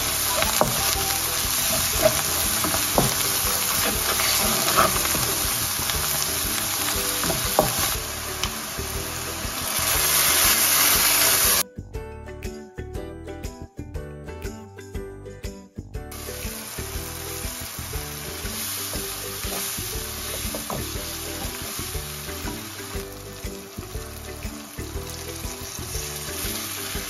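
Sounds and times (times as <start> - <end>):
onions sizzling in oil: 0.0 - 11.6, 16.1 - 27.0
spatula knocking against pan: 0.4 - 8.0
wooden spatula scraping pan: 1.6 - 7.9.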